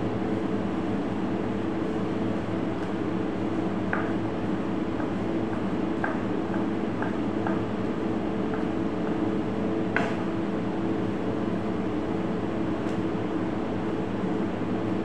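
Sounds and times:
kitchen machinery hum: 0:00.0 - 0:15.0
knife tapping on cutting board: 0:05.0 - 0:07.7, 0:10.0 - 0:10.2.

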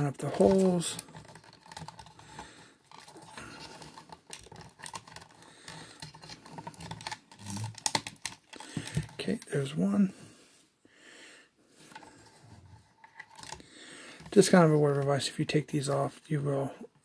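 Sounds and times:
plastic parts scraping: 0:00.0 - 0:09.8, 0:11.8 - 0:15.3.

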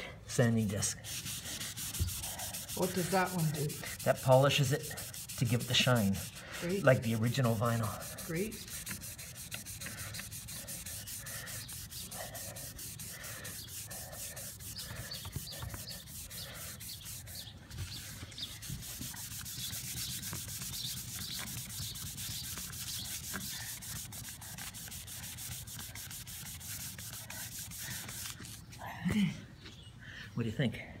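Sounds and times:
sanding disc rubbing vinyl: 0:00.9 - 0:28.7.

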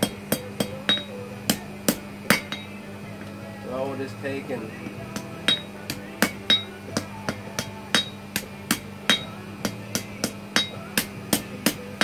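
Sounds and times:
anvil ringing: 0:00.0 - 0:02.8, 0:05.2 - 0:11.8
hammer striking steel on anvil: 0:00.0 - 0:02.8, 0:04.8 - 0:12.0.

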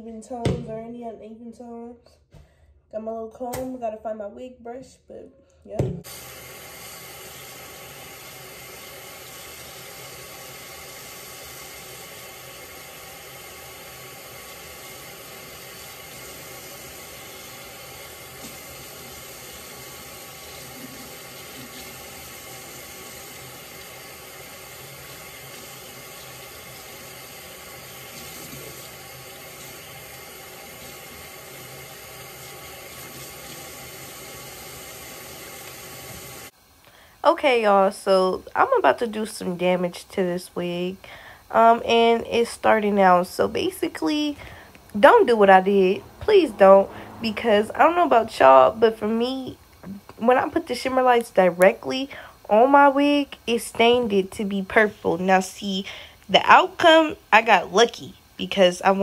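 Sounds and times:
tap water running into sink: 0:05.8 - 0:36.5, 0:53.4 - 0:54.5.

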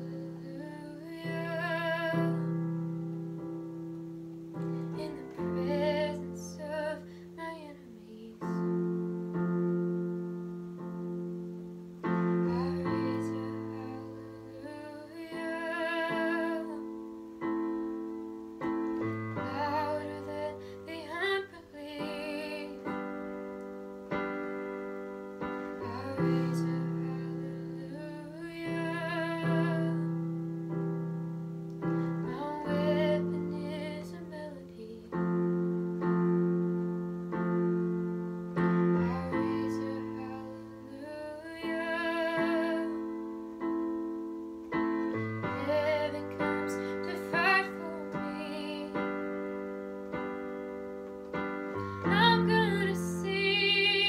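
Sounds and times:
woman singing long notes: 0:00.0 - 0:02.8, 0:04.8 - 0:09.3, 0:11.9 - 0:17.3, 0:18.9 - 0:23.3, 0:25.6 - 0:30.3, 0:31.8 - 0:35.8, 0:38.6 - 0:43.6, 0:44.7 - 0:49.5, 0:51.3 - 0:54.0
slow piano chords: 0:00.0 - 0:54.0.

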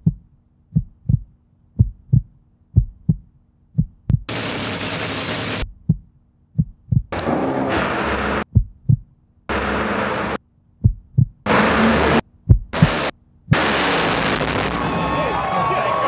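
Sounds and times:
heartbeat thumps: 0:00.0 - 0:04.3, 0:05.6 - 0:07.2, 0:08.4 - 0:09.2, 0:10.8 - 0:11.5, 0:12.4 - 0:13.6
loud burst of noise: 0:04.3 - 0:05.6, 0:07.2 - 0:08.4, 0:09.5 - 0:10.4, 0:11.5 - 0:12.2, 0:12.8 - 0:16.0.

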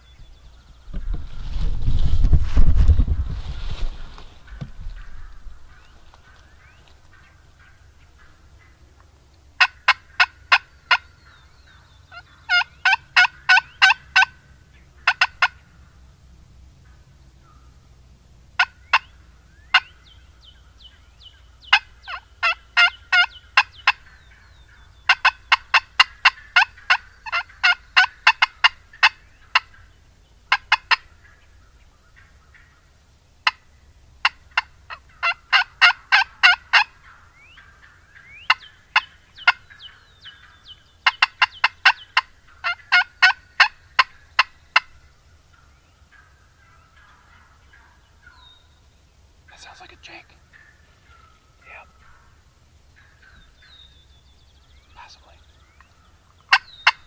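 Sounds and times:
turkey hen staccato clucks: 0:09.6 - 0:11.4, 0:12.1 - 0:15.7, 0:18.6 - 0:20.0, 0:21.7 - 0:32.8, 0:33.4 - 0:33.6, 0:34.2 - 0:48.4, 0:49.5 - 0:53.7, 0:55.0 - 0:57.0.

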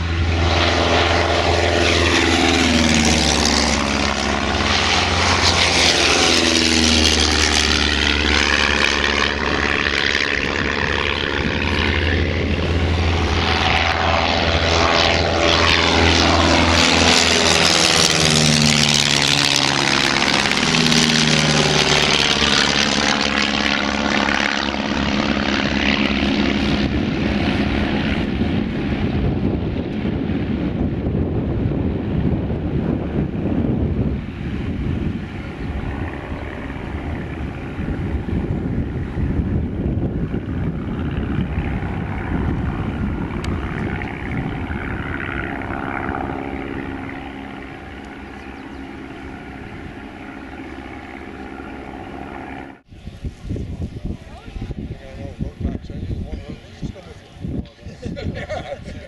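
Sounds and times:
propeller plane engines droning: 0:00.0 - 0:59.0.

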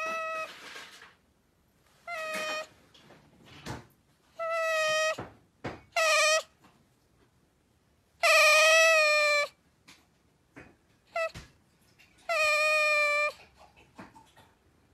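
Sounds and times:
otter squeaky calls: 0:02.1 - 0:02.7, 0:04.4 - 0:05.2, 0:06.0 - 0:06.5, 0:08.2 - 0:09.6, 0:12.2 - 0:13.4.

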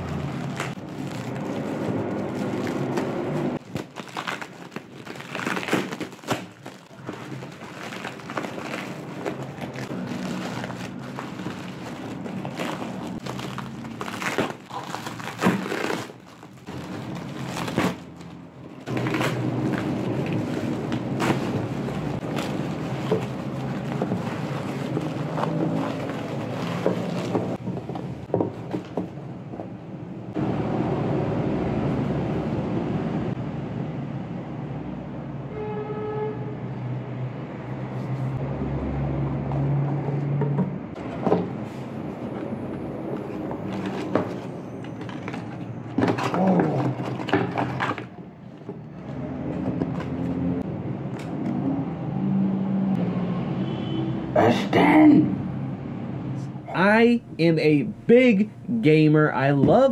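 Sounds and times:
bubble wrap crinkling: 0:00.0 - 0:27.6
cardboard box handled: 0:18.9 - 0:29.1.

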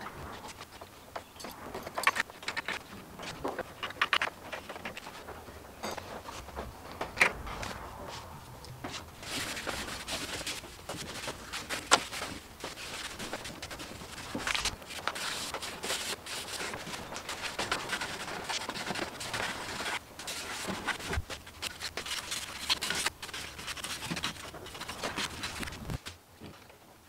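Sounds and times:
rough rustling: 0:00.0 - 0:26.6.

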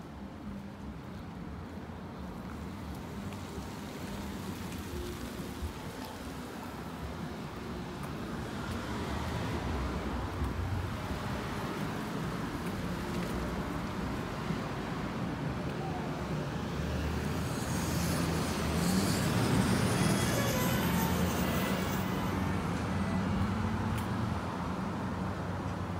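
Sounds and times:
cars driving past: 0:16.4 - 0:25.9.

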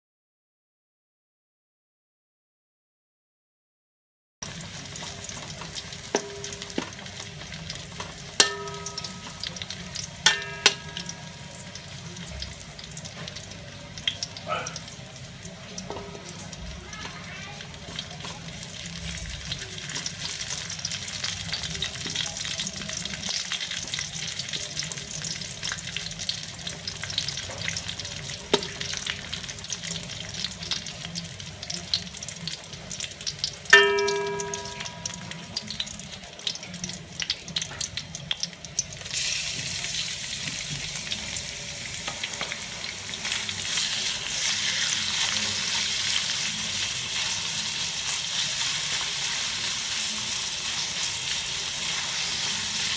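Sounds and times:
food sizzling in hot oil: 0:04.4 - 0:52.9
metal spatula scraping and tapping: 0:05.4 - 0:07.1, 0:07.7 - 0:11.4, 0:15.9 - 0:16.4
sharp metal clang: 0:06.2 - 0:06.9, 0:08.4 - 0:09.6, 0:10.3 - 0:11.5, 0:33.8 - 0:35.4.

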